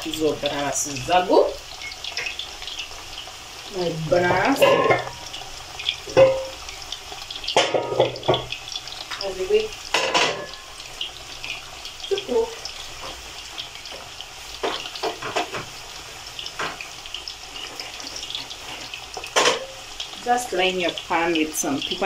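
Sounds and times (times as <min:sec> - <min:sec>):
oil sizzling in a pan: 0:00.0 - 0:22.0
kitchenware clattering: 0:04.1 - 0:05.4, 0:06.1 - 0:06.6, 0:07.5 - 0:08.6, 0:09.9 - 0:10.7, 0:14.6 - 0:15.7, 0:17.6 - 0:19.8.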